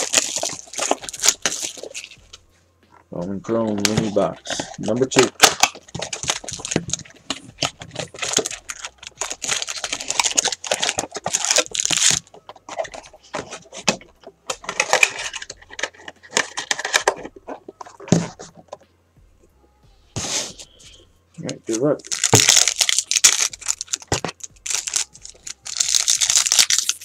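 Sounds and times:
cardboard box crackling and tearing: 0.0 - 2.2, 5.2 - 12.2, 22.1 - 27.0.

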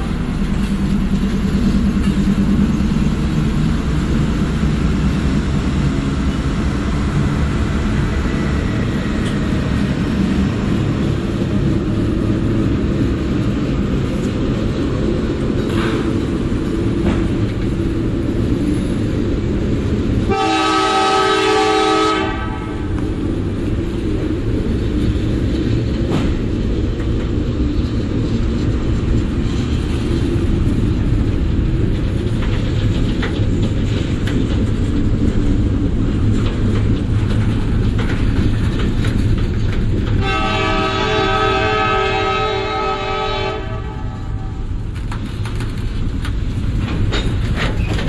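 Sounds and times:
diesel locomotive engine: 0.0 - 48.0
train wheels rumbling over rails: 0.0 - 48.0
train air horn: 20.3 - 22.9, 40.2 - 44.7.

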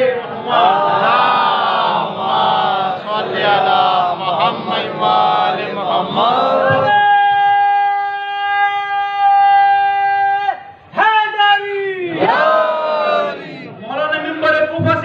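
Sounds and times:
men chanting together: 0.0 - 7.0, 12.2 - 13.8
crowd of men shouting: 0.0 - 15.0.

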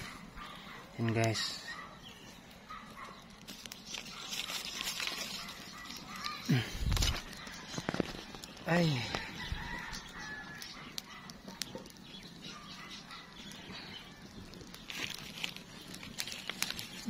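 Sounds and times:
distant bird calls: 0.0 - 17.0.

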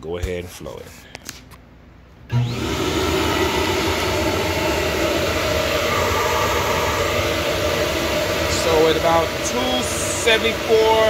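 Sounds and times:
motor hum: 3.9 - 8.5
air rushing through intake: 4.7 - 9.0.

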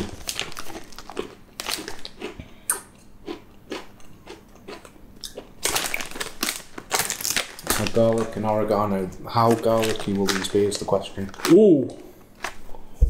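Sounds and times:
snack packets crinkling: 0.0 - 2.4, 5.3 - 12.8
crunchy crisps being chewed: 0.0 - 8.6, 9.4 - 12.7.

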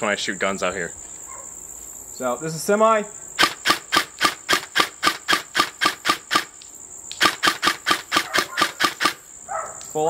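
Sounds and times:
airsoft rifle shots: 3.4 - 6.6, 7.2 - 9.2.

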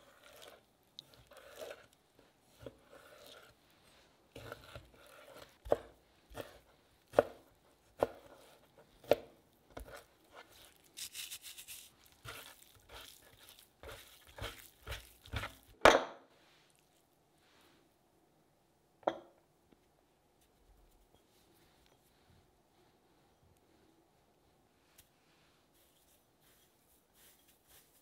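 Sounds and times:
slicing meat: 0.0 - 3.5, 9.8 - 15.8.

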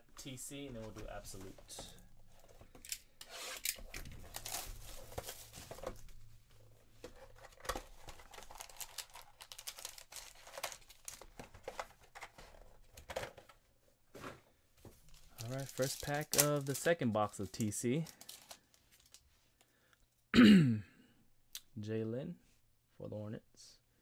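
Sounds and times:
foil packs crinkling: 4.2 - 5.9, 7.5 - 11.8, 15.1 - 19.2
wrapping tearing: 8.1 - 11.3, 15.1 - 19.2.

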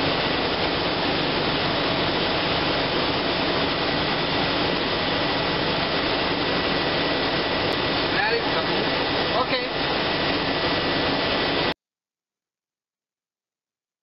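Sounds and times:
thin high whine: 0.0 - 11.8.

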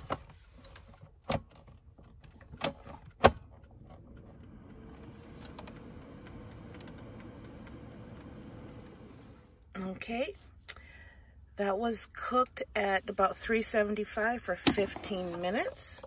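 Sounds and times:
dial timer ticking: 0.8 - 9.8
air fryer fan humming: 3.8 - 9.6.

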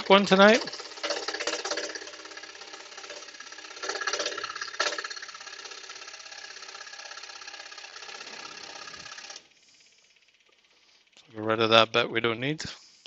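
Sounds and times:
scroll saw cutting wood: 0.0 - 10.1.

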